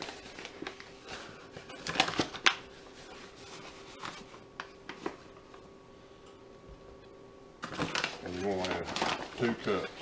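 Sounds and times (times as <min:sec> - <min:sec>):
paper bag rustling: 0:00.0 - 0:05.3, 0:07.6 - 0:10.0
faint steady hum: 0:00.0 - 0:10.0.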